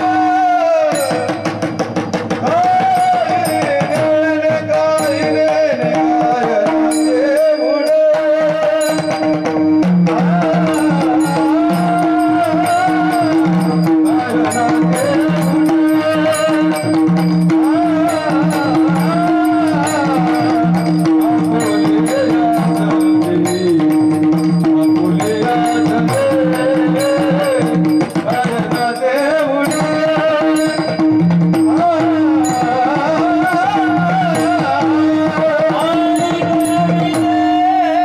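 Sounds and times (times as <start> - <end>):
hand cymbals beat: 0.0 - 38.0
men singing devotional song: 0.0 - 38.0.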